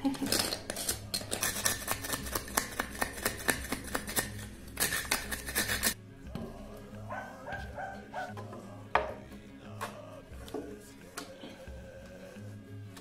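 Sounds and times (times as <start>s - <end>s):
metal blade scraping wood: 3.4s - 6.0s.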